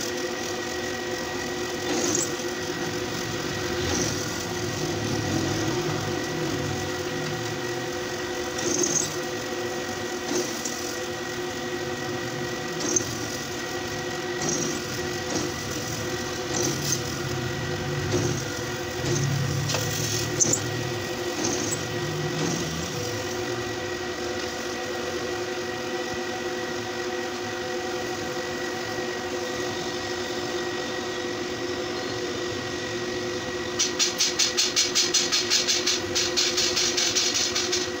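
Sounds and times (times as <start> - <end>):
drill bit cutting steel: 0.0 - 24.8
drill press motor humming: 0.0 - 38.0.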